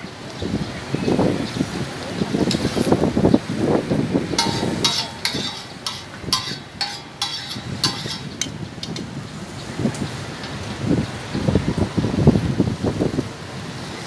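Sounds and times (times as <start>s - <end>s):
metal spatula scraping griddle: 4.4s - 9.0s.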